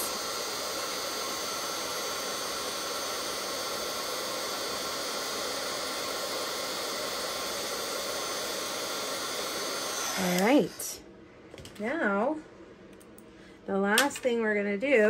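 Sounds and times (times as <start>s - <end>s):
heat tool blowing hot air: 0.0s - 11.0s.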